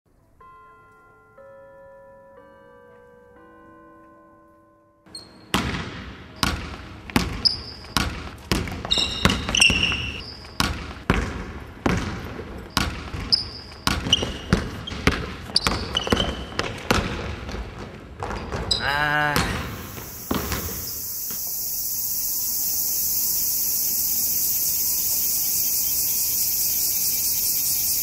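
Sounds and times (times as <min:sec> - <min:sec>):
sneaker squeaks: 0:05.1 - 0:05.6, 0:07.2 - 0:08.1, 0:08.8 - 0:10.7, 0:12.8 - 0:16.8
basketball bouncing on wooden floor: 0:05.2 - 0:18.8, 0:19.4 - 0:21.0.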